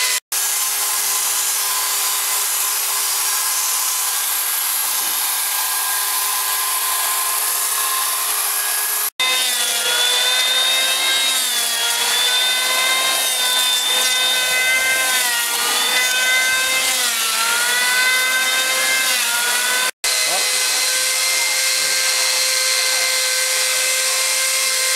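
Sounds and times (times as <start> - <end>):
carving cutter running: 0.0 - 24.9
electric chainsaw running: 0.0 - 24.9
electric hand planer on wood: 0.0 - 24.9.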